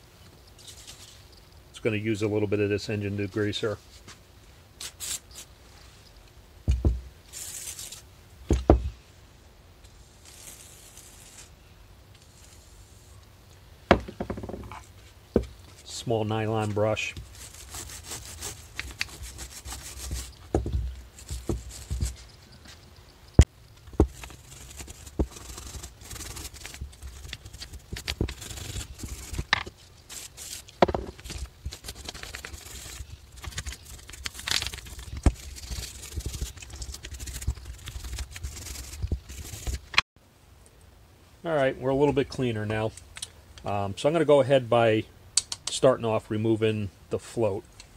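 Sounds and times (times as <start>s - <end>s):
brush scrubbing carburetor: 24.1s - 39.8s.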